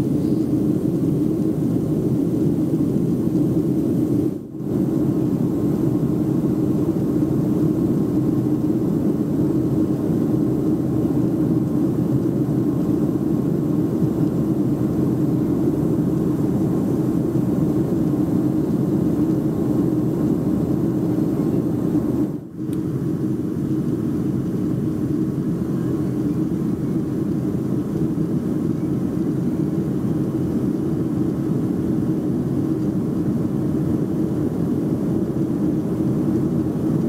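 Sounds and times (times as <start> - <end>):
airliner cabin noise in flight: 0.0 - 37.0.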